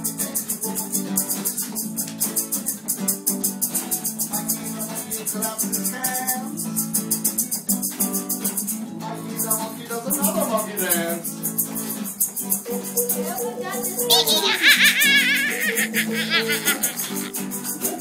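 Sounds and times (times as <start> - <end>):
acoustic guitars strummed: 0.0 - 13.2.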